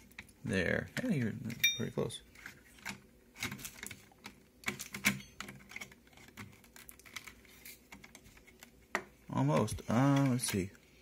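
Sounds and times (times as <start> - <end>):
plastic caddy clicking against metal: 9.6 - 10.7.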